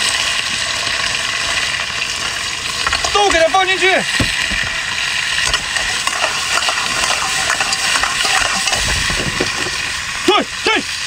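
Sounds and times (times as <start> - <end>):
seafood sizzling in a wok: 0.0 - 11.0
metal spatula scraping a pan: 5.4 - 8.9.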